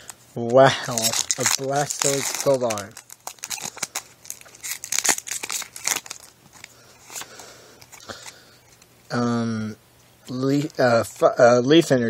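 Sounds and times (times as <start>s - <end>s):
cards rustling: 0.0s - 8.9s
foil wrapper crinkling: 0.0s - 8.9s.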